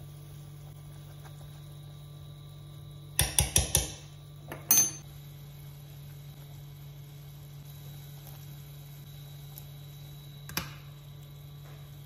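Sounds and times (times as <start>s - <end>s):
steady low hum: 0.0s - 12.0s
metal utensils clinking: 4.7s - 5.0s.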